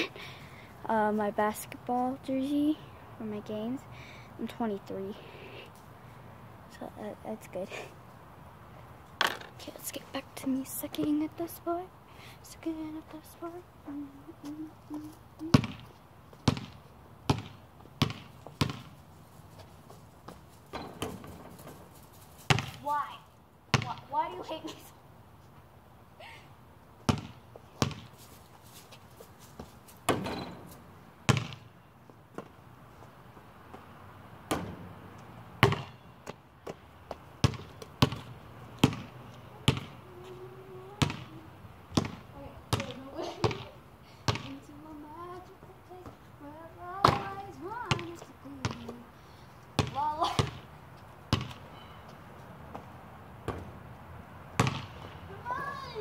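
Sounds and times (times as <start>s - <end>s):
basketball bouncing on concrete: 15.4s - 19.0s, 20.2s - 21.8s, 22.4s - 22.8s, 23.7s - 24.1s, 27.0s - 28.1s, 29.6s - 30.7s, 31.3s - 31.7s, 33.7s - 35.0s, 35.6s - 40.3s, 40.9s - 44.6s, 47.0s - 49.0s, 49.8s - 50.7s, 51.3s - 51.8s, 52.7s - 53.7s, 54.5s - 55.2s.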